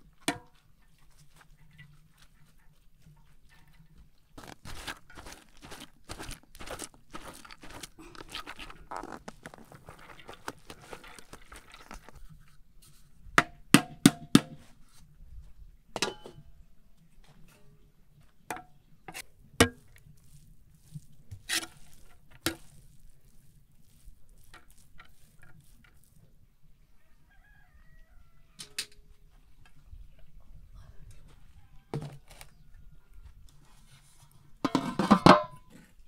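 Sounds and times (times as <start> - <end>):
rice scraping out of metal pan: 4.4 - 12.4, 19.1 - 26.2
pot and lid clanking: 34.7 - 35.7.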